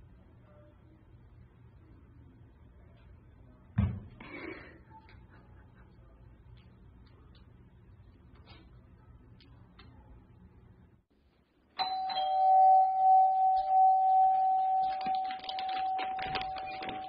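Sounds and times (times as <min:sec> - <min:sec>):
electric doorbell ringing: 0:11.8 - 0:17.0.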